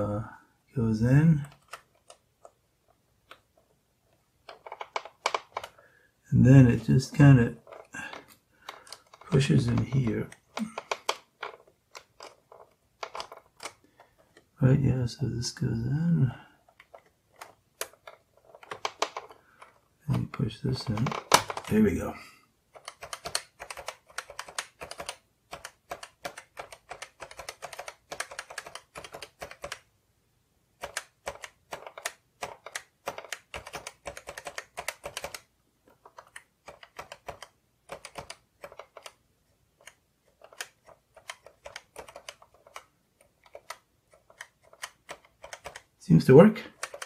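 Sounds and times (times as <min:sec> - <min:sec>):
typewriter keys clicking: 0:22.8 - 0:29.8, 0:30.8 - 0:39.2, 0:39.9 - 0:45.9, 0:46.7 - 0:47.0.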